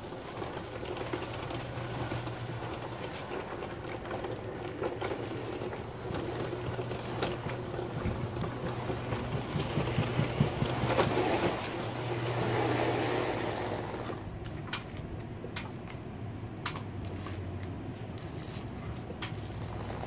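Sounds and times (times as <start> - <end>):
low mechanical hum: 0.0 - 20.0
rustling: 17.0 - 20.0.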